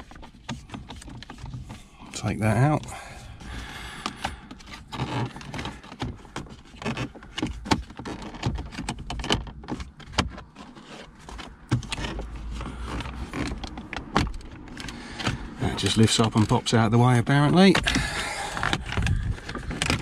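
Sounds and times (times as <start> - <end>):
plastic trim clicking and rattling: 0.0 - 1.9, 3.5 - 20.0.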